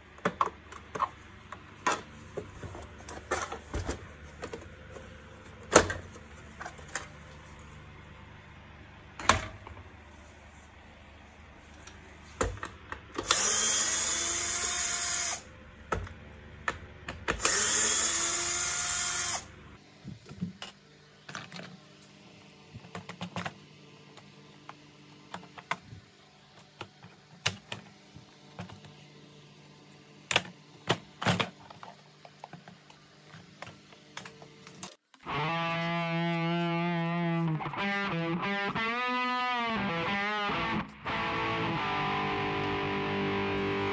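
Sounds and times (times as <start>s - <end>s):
plastic parts clicking and knocking: 0.1s - 7.2s.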